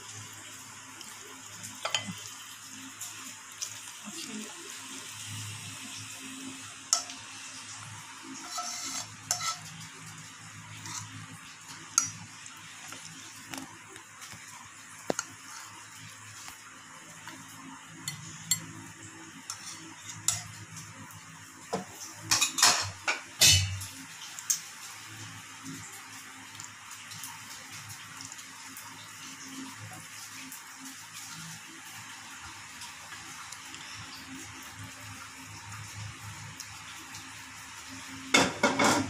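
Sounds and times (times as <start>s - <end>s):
tongs clinking on pan and plate: 1.8s - 2.2s, 6.9s - 7.2s, 8.4s - 9.7s, 11.9s - 12.2s, 22.3s - 23.9s.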